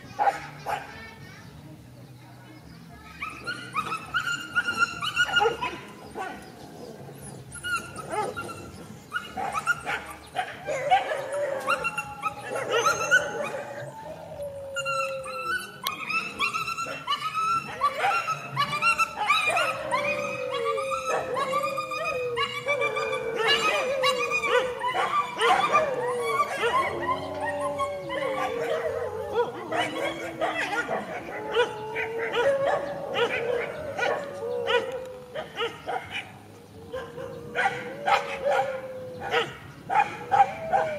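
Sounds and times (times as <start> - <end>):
dogs yelping and barking: 3.2 - 40.9.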